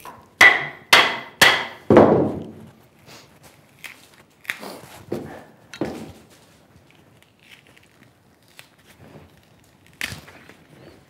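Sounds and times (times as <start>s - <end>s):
tool knocking into wood: 0.4s - 2.6s.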